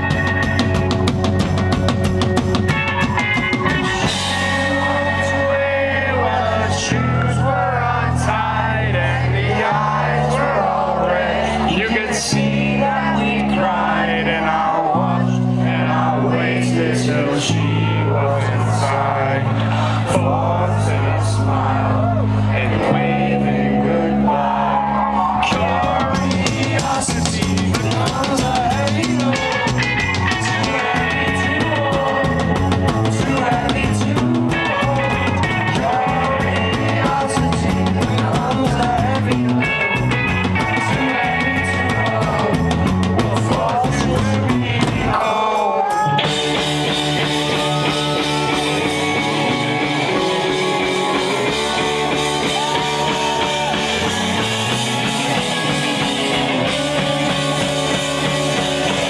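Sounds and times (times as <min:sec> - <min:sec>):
electric guitar: 0:00.0 - 0:10.4, 0:11.2 - 0:59.0
drum kit: 0:00.0 - 0:10.5, 0:24.5 - 0:59.0
electric bass: 0:00.0 - 0:59.0
person singing lead vocal: 0:03.0 - 0:59.0.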